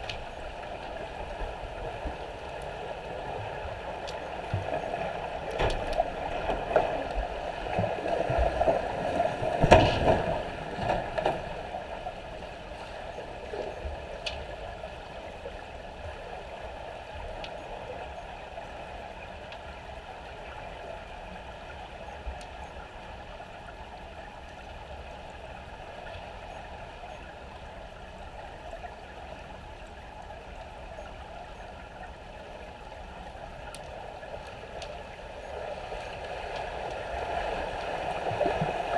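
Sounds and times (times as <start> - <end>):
underwater swimming splashes: 0.0 - 15.2, 30.8 - 38.9
faint steady hum: 0.0 - 38.9
underwater bubbling: 0.0 - 38.9.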